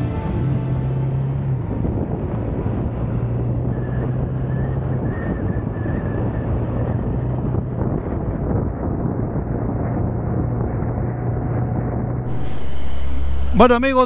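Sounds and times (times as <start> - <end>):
wind rushing over microphone: 0.0 - 14.0
motorcycle engine running: 12.2 - 14.0.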